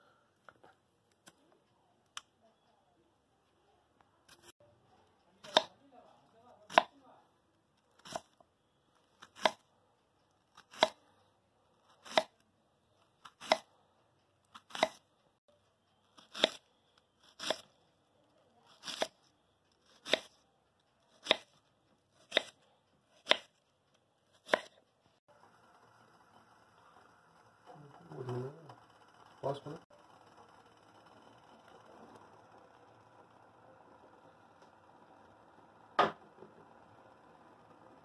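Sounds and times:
knife slicing banana: 5.4s - 5.8s, 6.6s - 7.0s, 8.0s - 8.4s, 9.2s - 9.6s, 10.5s - 11.0s, 11.9s - 12.4s, 13.2s - 13.7s, 14.5s - 15.1s, 16.2s - 16.6s, 17.2s - 17.7s, 18.7s - 19.2s, 19.8s - 20.4s, 21.1s - 21.6s, 22.2s - 23.6s, 24.4s - 24.8s.

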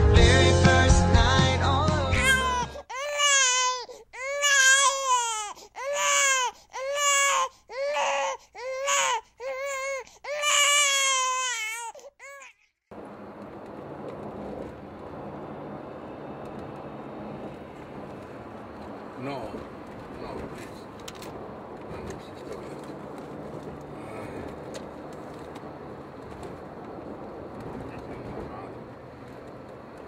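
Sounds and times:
car road noise: 0.0s - 2.8s, 12.9s - 30.0s
infant crying: 2.1s - 12.6s.

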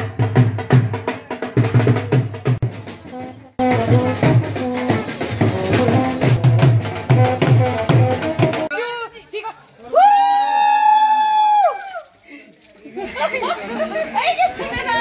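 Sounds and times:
music with steady drum beat: 0.0s - 8.7s.

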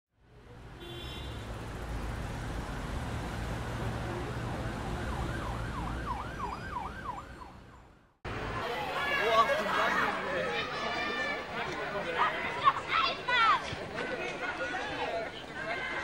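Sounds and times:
street noise: 0.1s - 16.0s
siren wailing: 4.1s - 7.9s.

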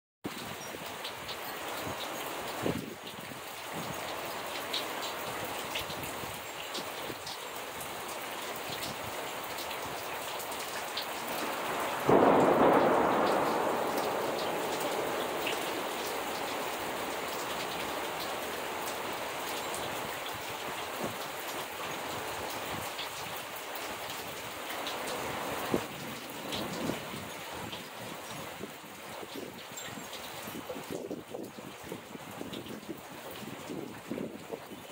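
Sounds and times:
steady rain falling: 0.3s - 34.9s
water drips: 0.3s - 34.9s
thunder clap rumbling: 11.2s - 19.2s.

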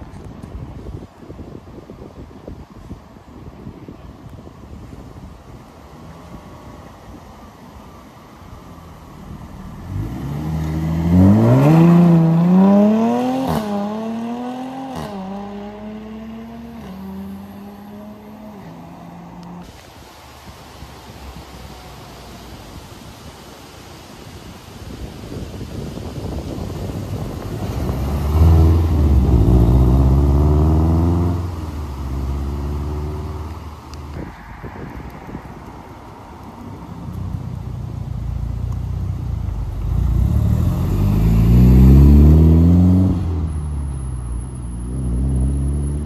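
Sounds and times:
car engine accelerating hard: 9.3s - 19.6s, 27.4s - 34.0s, 37.3s - 46.0s.

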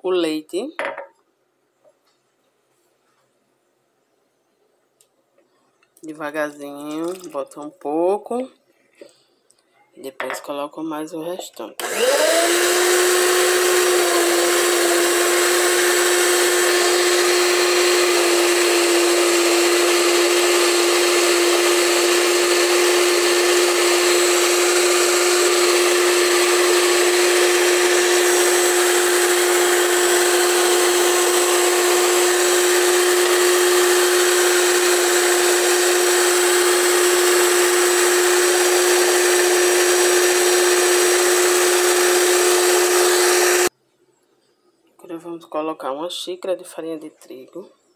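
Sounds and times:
mixer whine: 11.8s - 43.7s
stand mixer motor humming: 11.8s - 43.7s.

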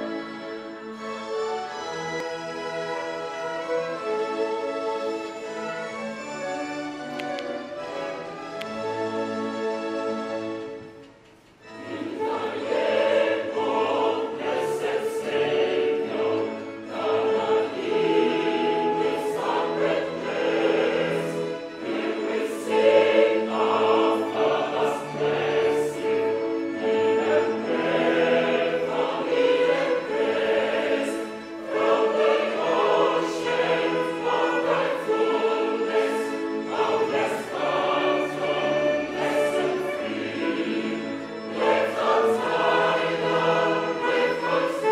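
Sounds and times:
violins: 0.0s - 44.9s
church choir singing a hymn: 11.7s - 44.9s.

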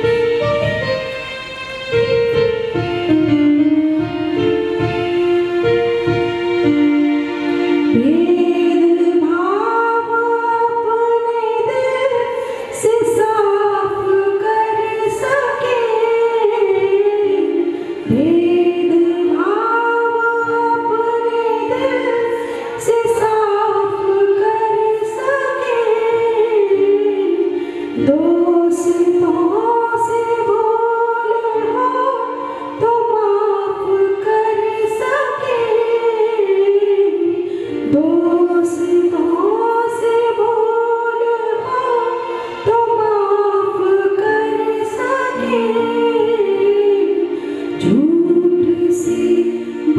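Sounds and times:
keyboard accompaniment: 0.0s - 49.9s
girl singing devotional song: 7.9s - 49.9s.

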